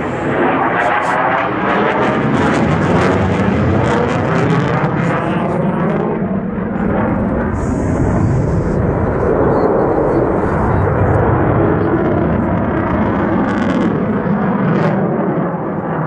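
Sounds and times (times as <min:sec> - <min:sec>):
fighter jet flying past: 0:00.0 - 0:16.0.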